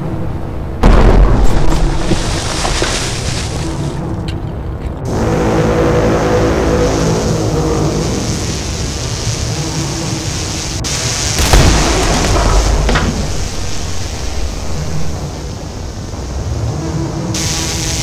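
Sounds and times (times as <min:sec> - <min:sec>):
low background rumble: 0:00.0 - 0:17.9
explosion deep boom: 0:00.8 - 0:02.5.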